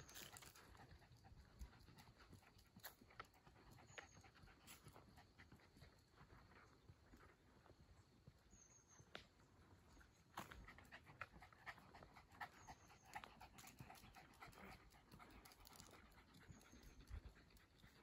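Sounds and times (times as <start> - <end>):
dog panting: 0.0 - 6.6, 10.4 - 18.0.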